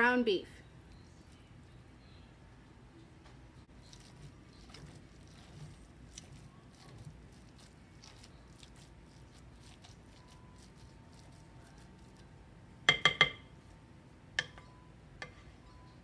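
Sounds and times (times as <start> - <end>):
squishing of raw meat: 3.7 - 12.5.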